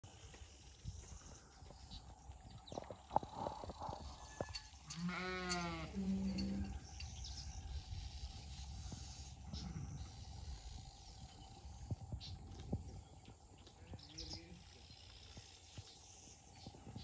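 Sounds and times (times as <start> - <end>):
sheep bleating: 4.9 - 6.2.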